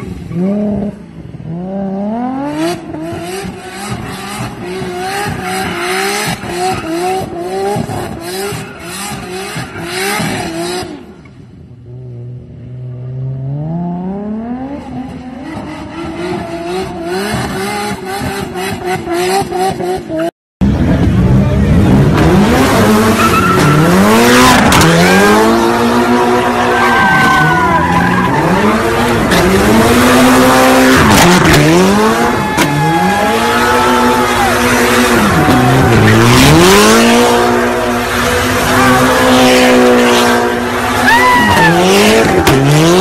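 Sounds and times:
car engine revving: 0.0s - 11.2s, 11.8s - 43.0s
tyres squealing on pavement: 8.2s - 10.3s, 23.0s - 25.3s, 26.1s - 29.6s, 40.7s - 43.0s.

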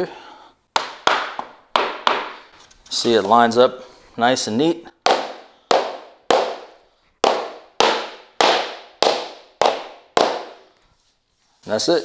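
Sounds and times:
rubber mallet knocking flooring planks: 0.8s - 2.5s, 5.0s - 10.8s.

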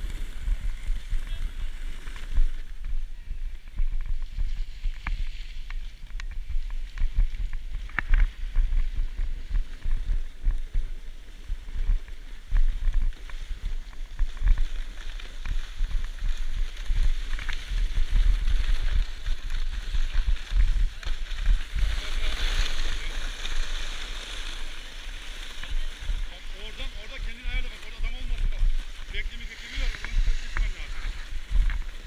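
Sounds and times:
snowboard scraping over snow: 0.0s - 32.0s
wind buffeting microphone: 0.0s - 32.0s.

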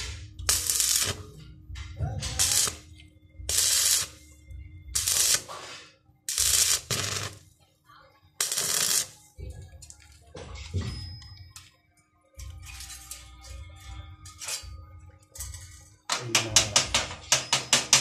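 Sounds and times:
arc welding crackling and sizzling: 0.0s - 7.5s, 8.4s - 10.0s.

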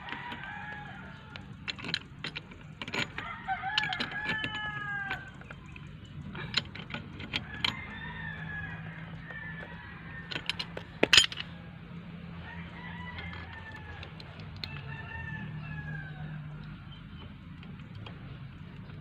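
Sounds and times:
rooster crowing: 0.0s - 1.6s, 3.2s - 5.5s, 7.3s - 16.7s
hand tool clinking on metal pipe: 10.3s - 11.5s.

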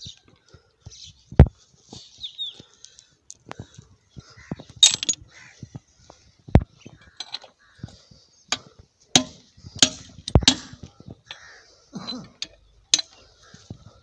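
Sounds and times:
hand tools clinking on metal: 4.8s - 5.2s, 9.2s - 13.2s.

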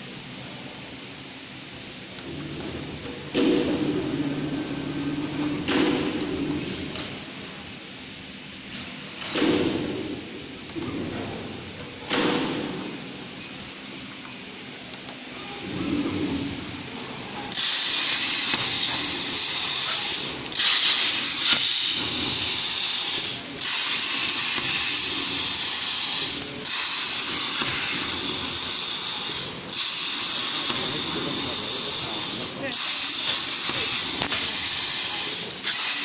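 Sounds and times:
plasma torch cutting hiss: 17.5s - 36.0s.

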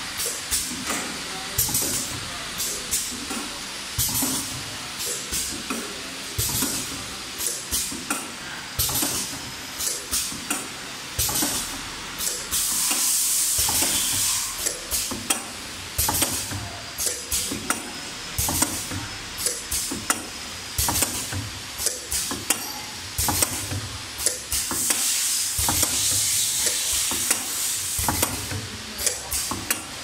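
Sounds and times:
machine hiss: 0.0s - 30.0s
machine mechanical clacks: 8.8s - 30.0s.

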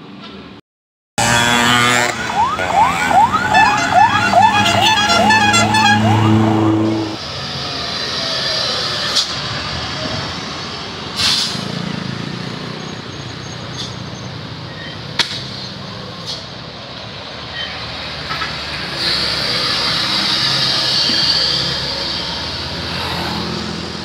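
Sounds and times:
heavy trucks driving past: 1.2s - 24.0s
short sharp hisses: 11.2s - 11.8s.

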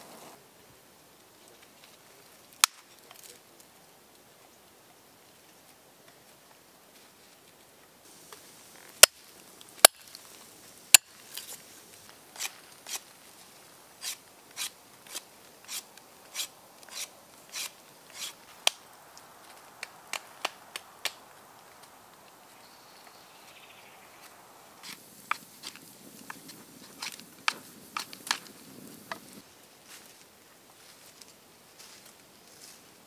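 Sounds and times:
hatchet chopping branch: 9.0s - 9.2s, 9.8s - 10.2s
knife shaving wooden stick: 12.3s - 13.1s, 14.0s - 18.5s, 24.8s - 28.5s.

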